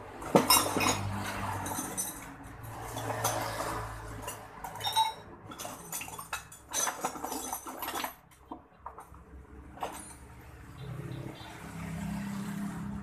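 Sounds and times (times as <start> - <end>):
metal tools clinking and rattling: 0.2 - 10.4.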